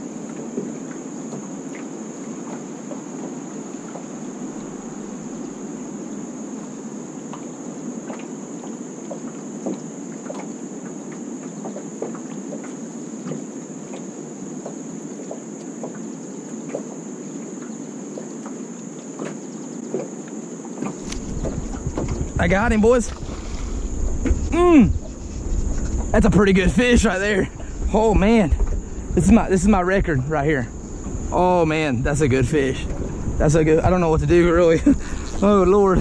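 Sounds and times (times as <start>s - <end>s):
steady high-pitched hum: 0.0s - 11.4s, 19.4s - 36.0s
water lapping against boat hull: 0.0s - 36.0s
small sharp splashes: 22.9s - 24.4s.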